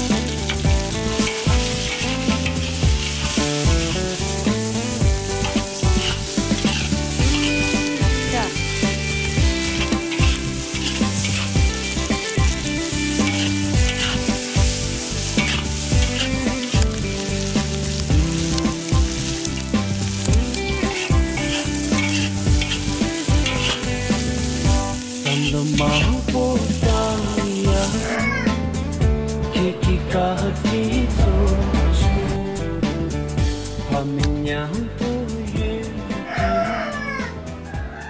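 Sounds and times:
metal spatula scraping wok: 0.0 - 28.2
food sizzling in a wok: 0.0 - 28.4.

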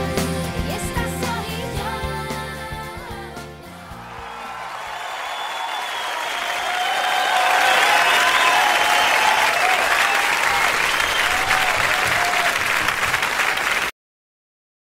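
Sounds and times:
crowd applauding: 3.7 - 13.9.

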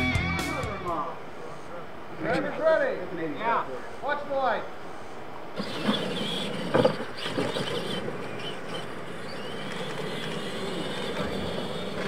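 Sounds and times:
electric motors whining: 5.2 - 12.0.

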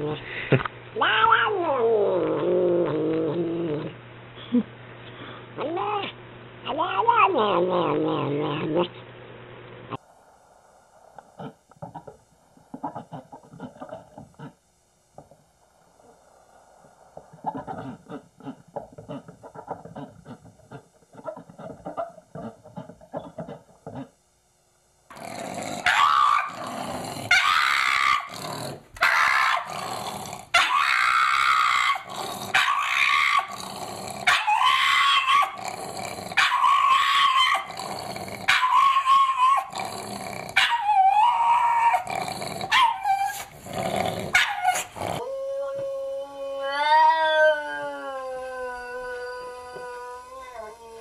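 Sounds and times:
dog howling: 25.8 - 28.4, 29.0 - 30.0, 30.6 - 37.8, 38.4 - 39.9, 40.6 - 43.5, 44.3 - 51.0
animal wavering cry: 25.8 - 39.9, 40.6 - 43.5.

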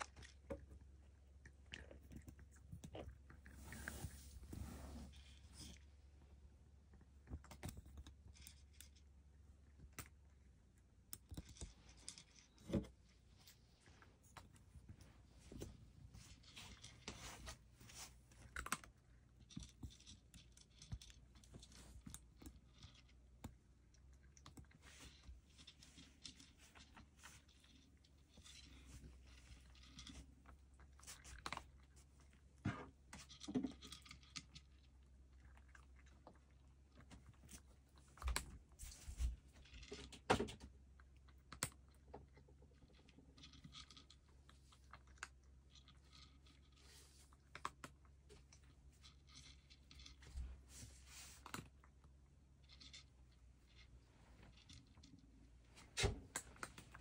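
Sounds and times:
cat chewing crunchy food: 0.0 - 39.0.

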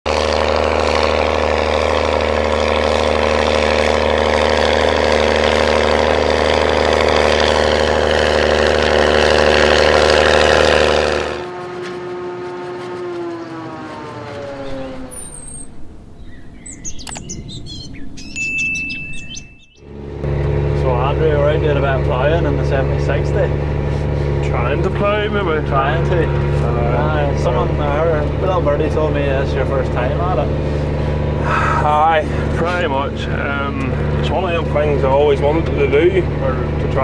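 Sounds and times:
tractor diesel engine running: 0.1 - 37.0
birds chirping: 12.2 - 21.7.

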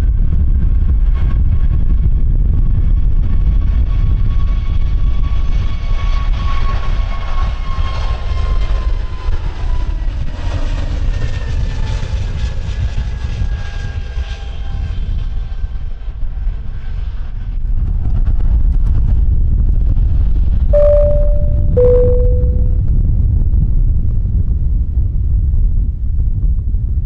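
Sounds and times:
short steady tone: 20.8 - 22.8.

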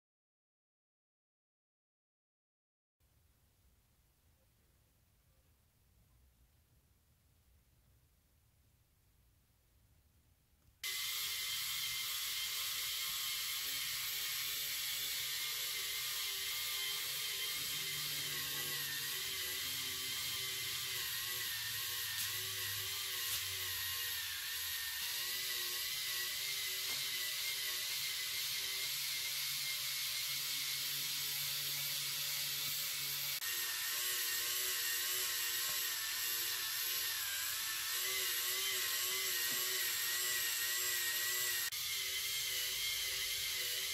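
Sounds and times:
toy motor whirring with plastic rattle: 10.8 - 43.9.

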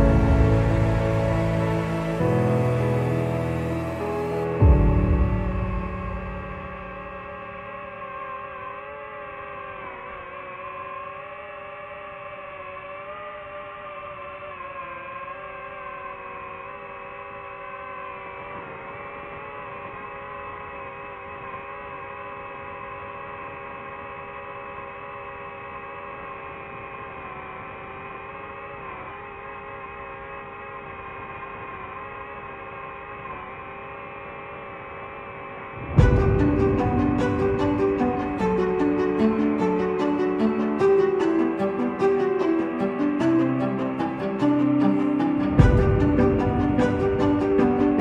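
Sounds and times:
music: 0.0 - 7.6, 36.0 - 48.0
drone propellers whining: 0.0 - 48.0.

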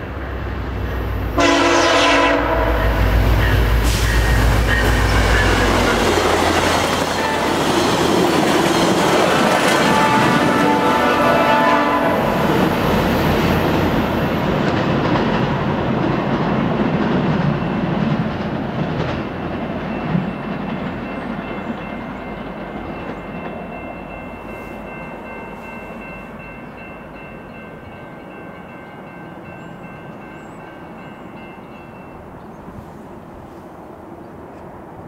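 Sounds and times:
train wheels clattering on rails: 2.9 - 11.2, 12.3 - 31.8.

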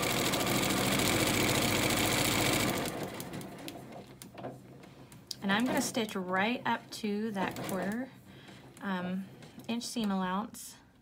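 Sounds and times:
sewing machine stitching: 0.0 - 4.2, 5.5 - 6.4, 7.4 - 8.8.

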